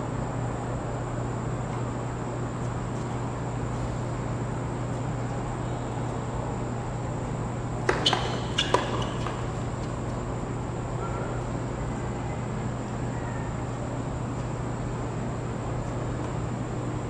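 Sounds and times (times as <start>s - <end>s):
steady low hum: 0.0s - 17.0s
tennis ball pocks: 7.8s - 10.0s.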